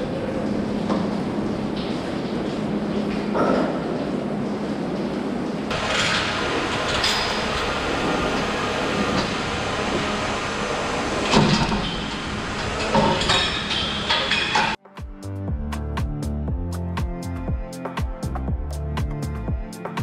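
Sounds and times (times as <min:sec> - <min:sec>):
milking machinery hum: 0:00.0 - 0:14.8
metal clanks and knocks: 0:11.2 - 0:14.8.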